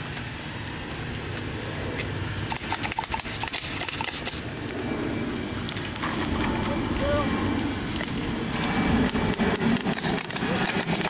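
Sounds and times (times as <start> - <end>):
rapid clicks and pops of bb fire: 2.5 - 4.8, 9.0 - 11.0.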